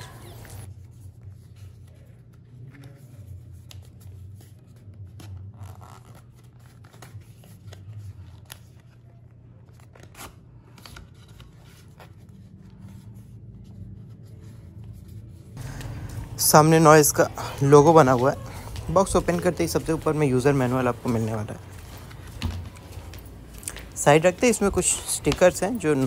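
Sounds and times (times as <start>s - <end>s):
steady low hum: 10.3s - 26.0s.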